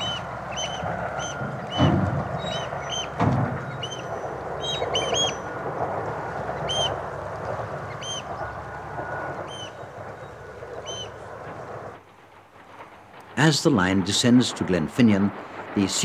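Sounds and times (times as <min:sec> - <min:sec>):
birds piping calls: 0:00.0 - 0:11.9
steady low rumble: 0:00.0 - 0:16.0.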